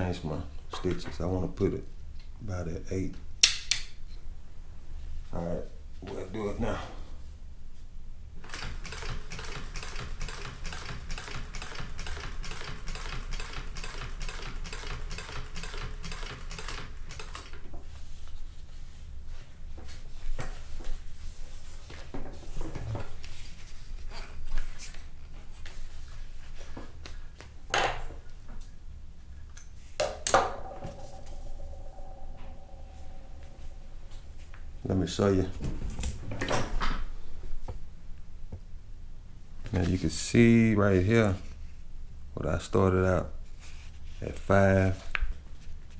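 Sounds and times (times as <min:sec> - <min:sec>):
sewing machine stitching: 0:08.4 - 0:17.6.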